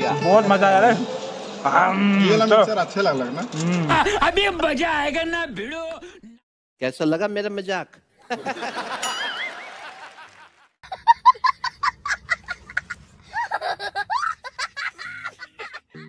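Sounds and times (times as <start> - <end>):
laughter: 8.2 - 16.0
child laughing hysterically: 10.1 - 16.0.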